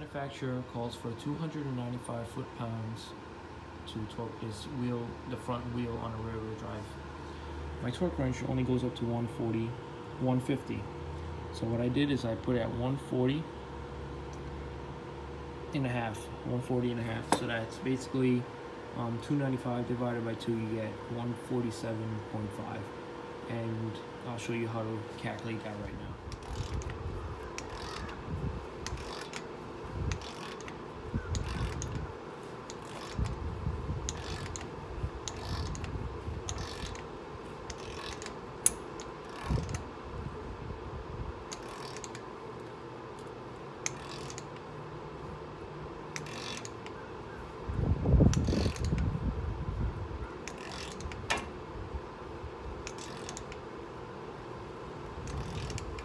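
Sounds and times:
torque wrench ratcheting clicks: 25.2 - 28.2, 28.8 - 39.9, 41.4 - 42.3, 43.2 - 44.7, 46.1 - 47.0, 48.2 - 49.1, 50.4 - 51.6, 52.8 - 53.7, 55.2 - 56.0.

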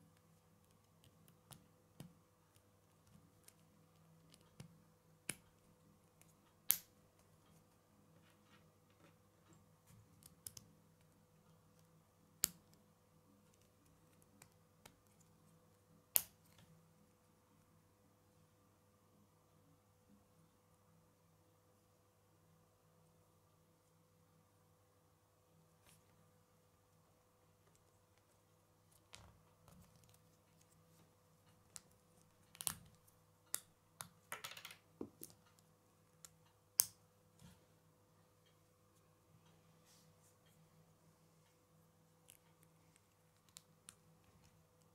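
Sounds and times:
faint steady hum: 0.0 - 44.9.

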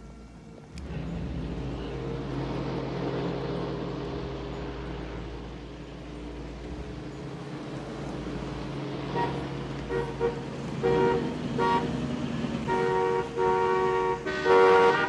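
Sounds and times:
low hum of traffic: 0.0 - 15.0
car horns honking: 6.8 - 15.0.

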